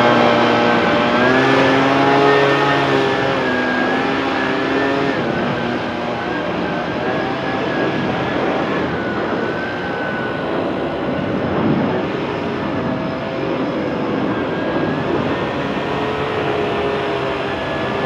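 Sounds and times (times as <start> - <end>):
leaf blower running: 0.0 - 10.6.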